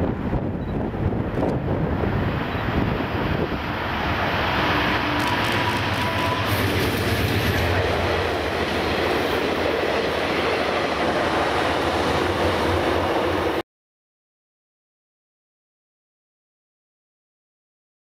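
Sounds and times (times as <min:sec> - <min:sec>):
diesel train passing at speed: 0:00.0 - 0:13.6
rumble of wheels on rail: 0:00.0 - 0:13.6.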